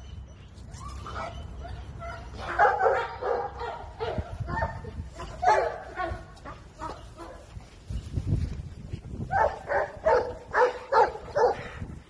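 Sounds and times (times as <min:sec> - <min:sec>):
dog barking: 0:02.4 - 0:07.5, 0:09.3 - 0:11.8.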